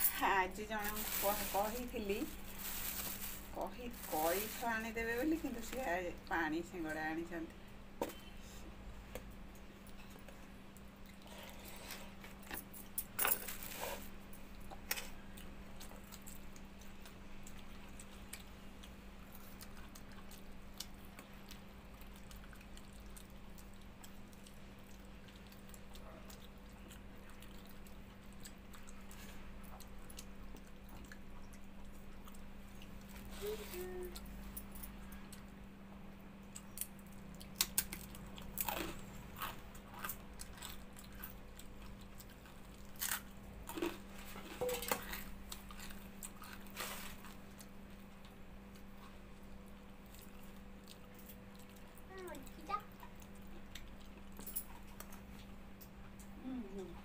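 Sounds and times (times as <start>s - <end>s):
steady low hum: 0.0s - 57.0s
close-up chewing: 14.0s - 34.5s, 36.3s - 56.4s.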